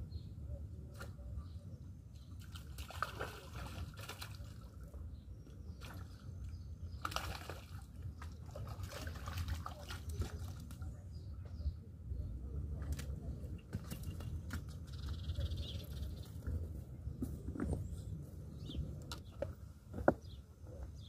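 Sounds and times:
water sloshing and trickling: 2.1s - 11.1s, 12.7s - 16.7s
steady low rumble: 10.7s - 21.0s.

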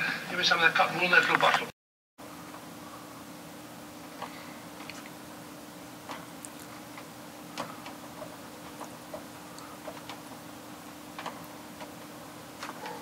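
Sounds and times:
steady low hum: 2.2s - 13.0s
faint clicks and ticks: 6.0s - 13.0s.

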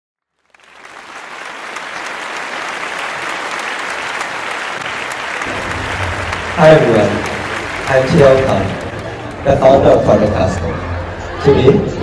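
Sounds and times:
large audience applauding: 0.3s - 10.8s.

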